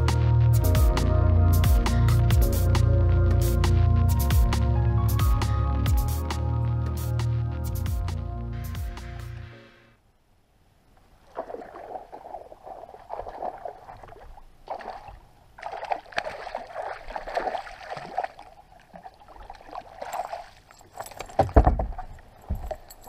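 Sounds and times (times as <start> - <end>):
fish thrashing and splashing: 11.3 - 22.5
water sloshing against boat hull: 11.3 - 23.0.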